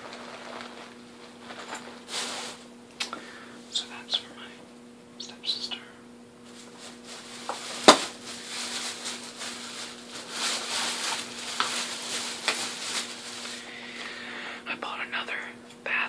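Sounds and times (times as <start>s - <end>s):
packaging rustling and scraping: 0.0s - 2.6s, 6.4s - 14.1s.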